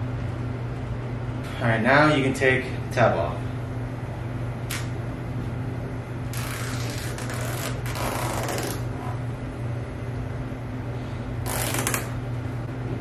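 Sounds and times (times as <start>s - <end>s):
backing film peeling off tape: 6.4s - 8.9s, 11.5s - 12.2s.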